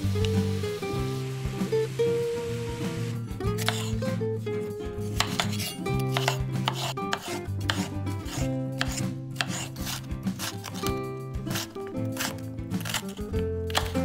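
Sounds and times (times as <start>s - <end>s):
background music: 0.0s - 14.0s
knife chopping on a cutting board: 3.6s - 4.0s, 5.1s - 14.0s.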